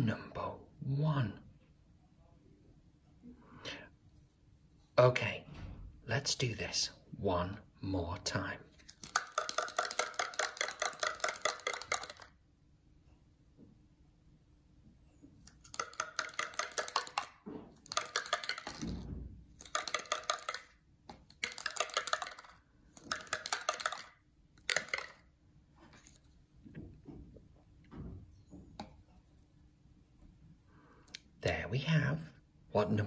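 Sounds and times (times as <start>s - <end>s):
die rattling in plastic cup: 8.7s - 12.4s, 15.4s - 25.3s.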